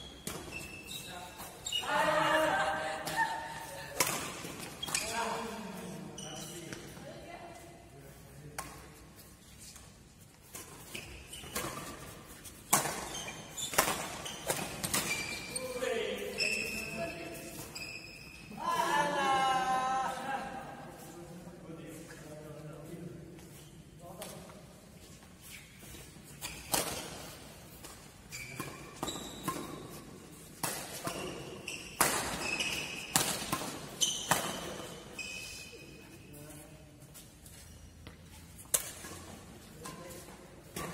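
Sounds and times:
shoes squeaking on court floor: 0.0 - 2.2, 2.8 - 18.7, 21.9 - 40.9
racket hitting shuttlecock: 10.5 - 15.2, 26.4 - 35.0, 38.0 - 40.9.

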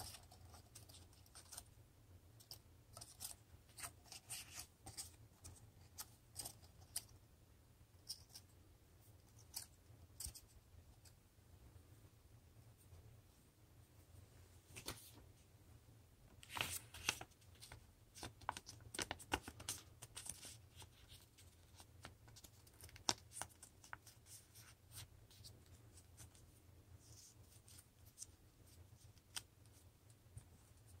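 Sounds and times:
paper rustling and crinkling: 16.4 - 26.4.

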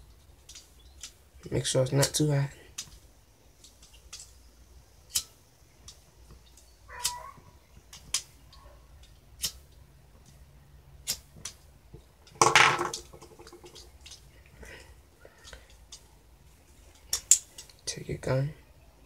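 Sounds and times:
sharp plastic clicks: 7.8 - 10.4, 11.0 - 11.6, 16.9 - 17.8.

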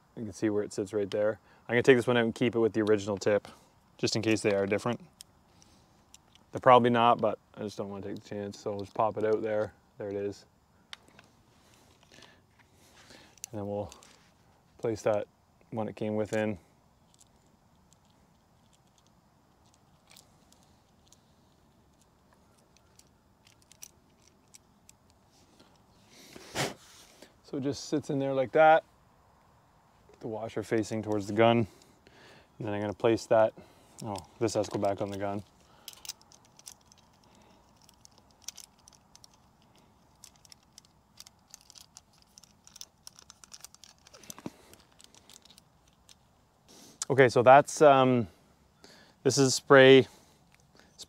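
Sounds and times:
faint clicks of small parts: 2.7 - 10.3, 10.9 - 26.4, 33.8 - 46.3, 50.1 - 51.0.

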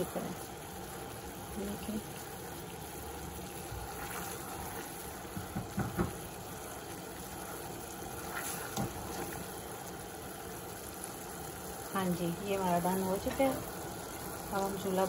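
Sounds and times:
syrup boiling in a pot: 0.0 - 15.0
light knocks: 5.4 - 6.2.

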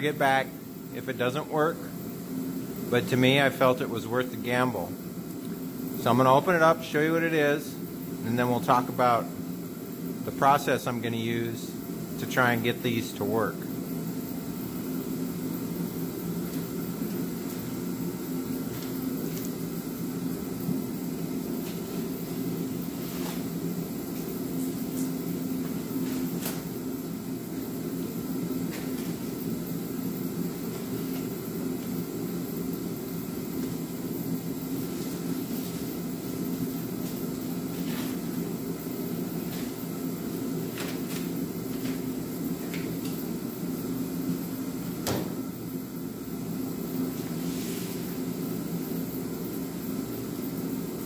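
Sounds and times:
heater humming: 0.0 - 51.0.

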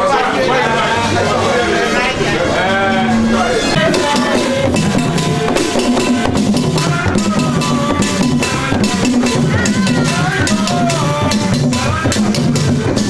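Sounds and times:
voices singing: 0.0 - 13.0
man singing into a microphone: 2.8 - 13.0
fast drumming: 3.7 - 13.0.

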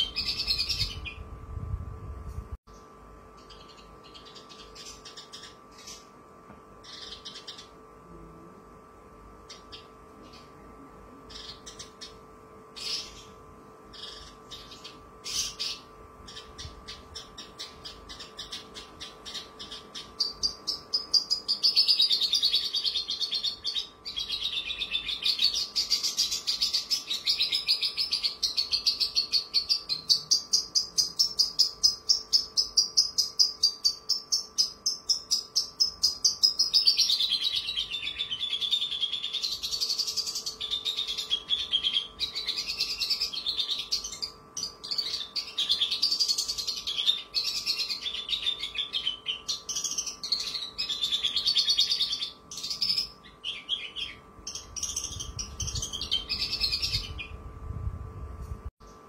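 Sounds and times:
lark singing fast trills: 0.0 - 1.3, 6.8 - 7.8, 11.3 - 57.4.

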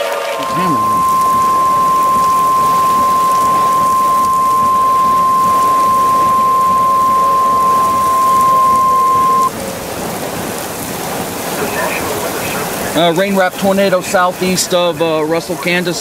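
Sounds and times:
steady beep tone: 0.4 - 9.5
heavy rain: 9.5 - 15.0.

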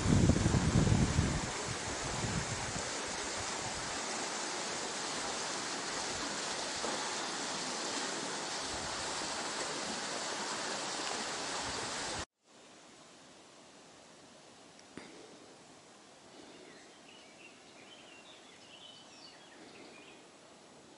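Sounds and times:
wind buffeting microphone: 0.0 - 4.0
rippling lake water: 0.0 - 12.3
wind through leafy trees: 0.0 - 20.9.

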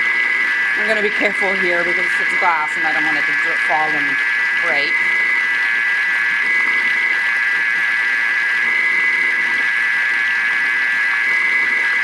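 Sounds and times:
food processor motor whine: 0.0 - 12.0.

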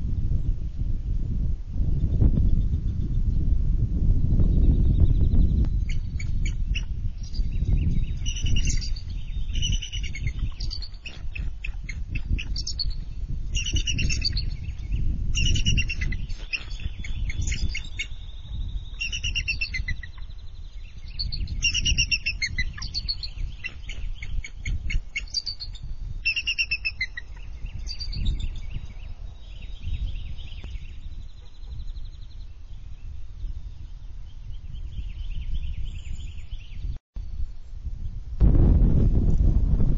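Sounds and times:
eagles chittering calls: 8.2 - 20.4, 21.0 - 28.4.

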